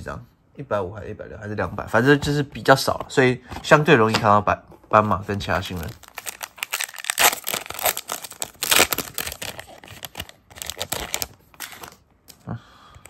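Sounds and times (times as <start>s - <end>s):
foil wrappers crinkling: 5.6s - 12.0s
foil pack tearing: 5.8s - 12.0s.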